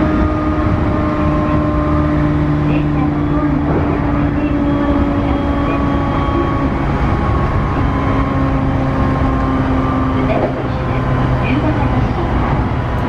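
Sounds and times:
traction motor whine: 0.0s - 13.0s
train wheels rumbling on rail: 2.7s - 7.6s, 10.2s - 13.0s.

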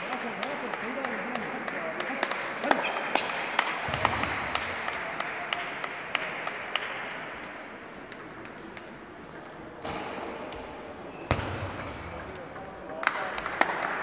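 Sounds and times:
table tennis balls clicking: 0.1s - 10.8s
loud table tennis hit: 2.2s - 10.6s, 11.2s - 14.0s.

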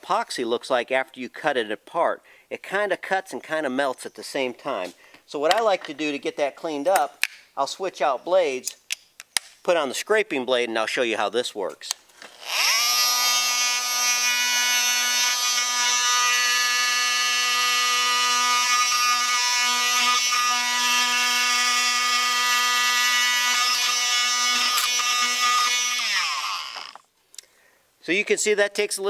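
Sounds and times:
oscillating multi-tool buzzing: 12.2s - 27.1s.

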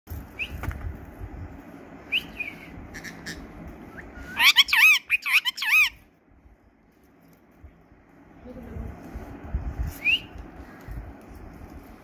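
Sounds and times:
parakeet screeches: 4.4s - 6.0s.

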